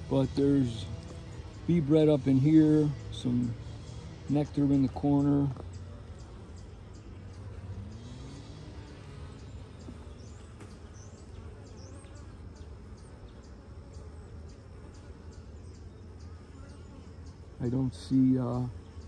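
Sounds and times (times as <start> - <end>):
honeybees humming: 0.0 - 19.0.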